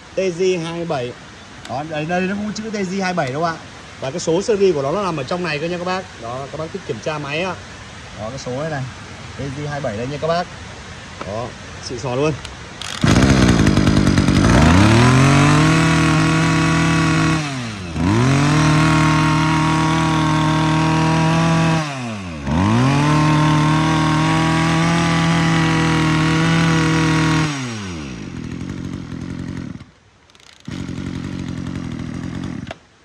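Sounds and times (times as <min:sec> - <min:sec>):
brush cutter engine revving: 0:12.4 - 0:32.8.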